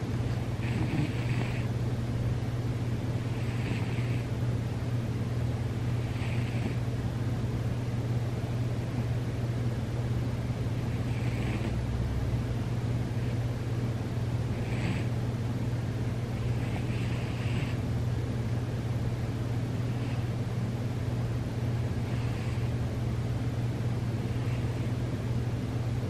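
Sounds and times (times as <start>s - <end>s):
steady low hum: 0.0s - 26.0s
cat snoring: 0.5s - 1.7s, 3.2s - 4.3s, 5.9s - 6.9s, 10.8s - 11.8s, 14.5s - 15.2s, 16.4s - 17.8s, 19.8s - 20.3s, 22.0s - 22.8s, 24.2s - 25.0s.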